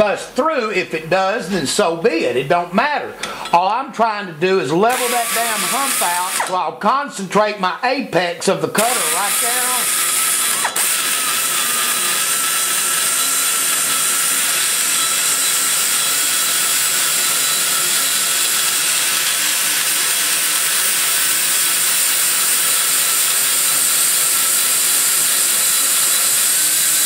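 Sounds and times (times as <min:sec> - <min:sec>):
die grinder cutting metal: 0:04.9 - 0:06.6, 0:08.7 - 0:27.0.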